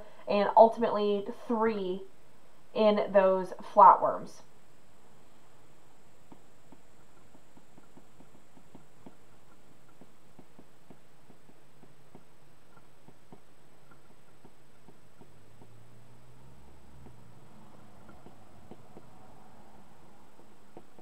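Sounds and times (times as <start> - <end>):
faint electrical hum: 0.0 - 21.0
stylus tapping on a screen: 6.3 - 15.8, 16.9 - 19.2.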